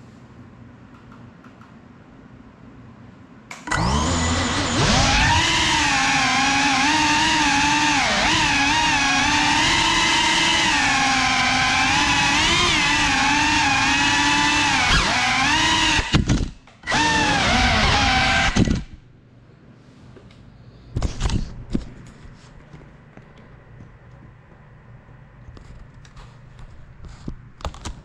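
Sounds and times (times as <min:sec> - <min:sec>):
drone motors and propellers whining: 0:03.7 - 0:19.0.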